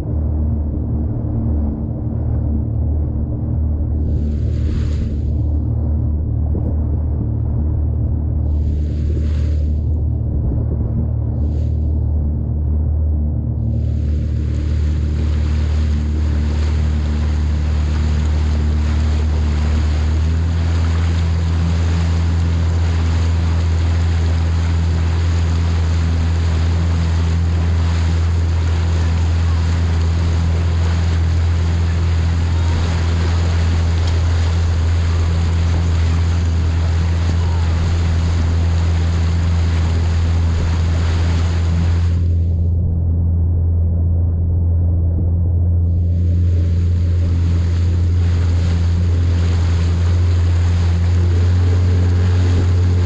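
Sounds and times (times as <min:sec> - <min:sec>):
watercraft engine droning: 0:00.0 - 0:53.0
wind on microphone: 0:00.0 - 0:53.0
water rushing past hull: 0:03.9 - 0:06.8, 0:08.3 - 0:10.4, 0:13.6 - 0:43.0, 0:45.8 - 0:53.0.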